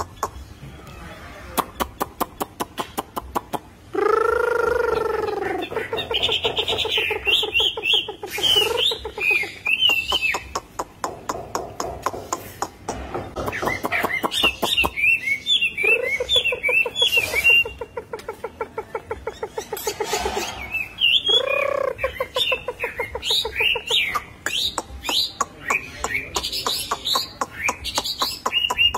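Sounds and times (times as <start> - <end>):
bird warbling whistled song: 3.9 - 10.6, 13.3 - 18.1, 19.2 - 28.9.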